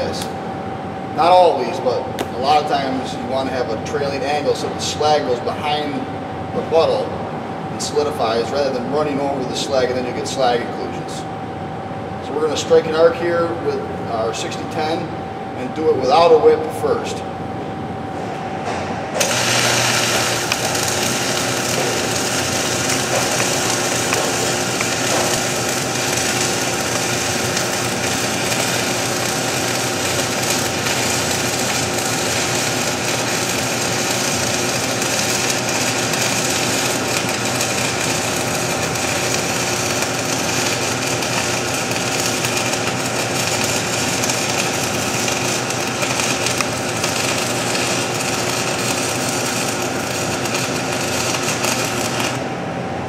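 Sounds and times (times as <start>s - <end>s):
welding arc crackling and sizzling: 0.0s - 0.4s, 19.2s - 52.7s
steady hum: 0.0s - 53.0s.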